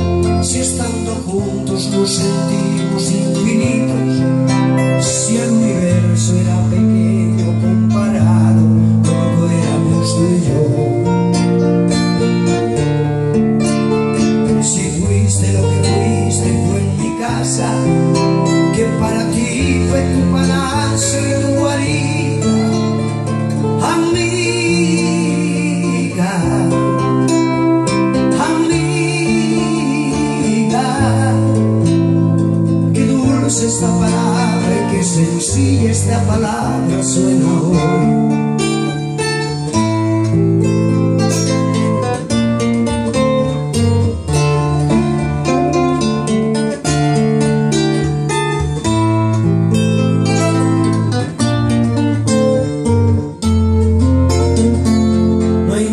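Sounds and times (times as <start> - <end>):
man singing into a microphone: 0.0 - 11.7, 14.4 - 39.6, 54.3 - 55.9
nylon-string guitar strumming: 0.0 - 55.9.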